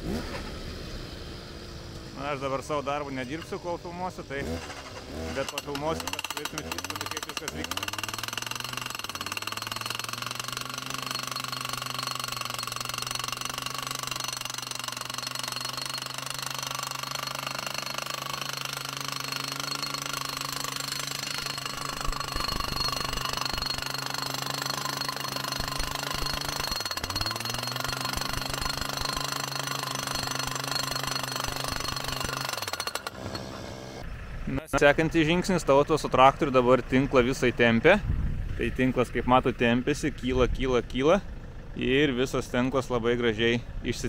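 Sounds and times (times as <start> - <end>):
diesel engine running: 0.0 - 44.0
post driver hammering posts: 4.4 - 33.6.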